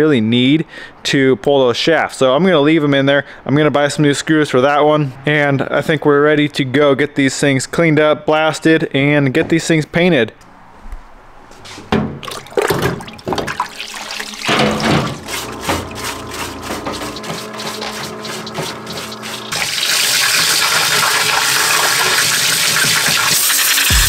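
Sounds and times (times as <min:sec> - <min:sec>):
metal parts clattering and splashing: 0:12.2 - 0:21.7
water spray hissing: 0:15.2 - 0:24.0.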